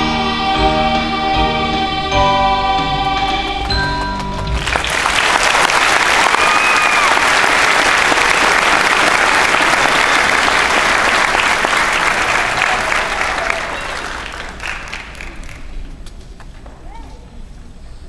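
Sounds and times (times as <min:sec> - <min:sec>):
children's choir singing: 0:00.0 - 0:04.0
audience applause: 0:04.4 - 0:15.8.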